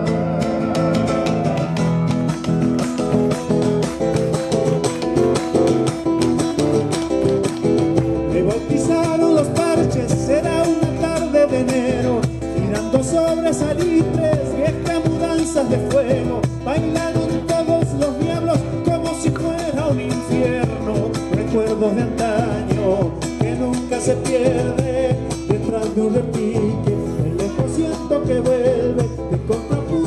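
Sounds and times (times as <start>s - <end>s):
strummed guitars: 0.0s - 30.0s
man singing: 8.2s - 30.0s.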